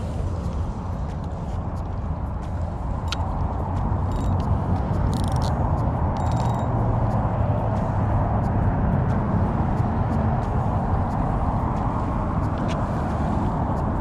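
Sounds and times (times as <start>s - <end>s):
wind rumble on microphone: 0.0s - 14.0s
fishing reel cranking rasps: 3.0s - 3.3s, 4.0s - 5.6s, 6.2s - 6.7s.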